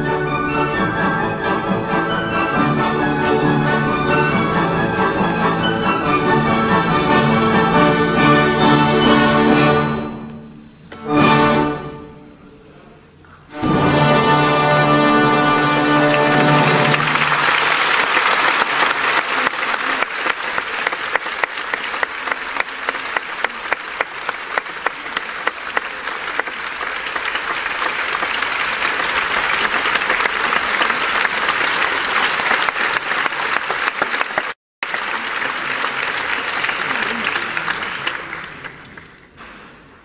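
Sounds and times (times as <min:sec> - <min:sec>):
audience applauding: 0:15.0 - 0:39.2.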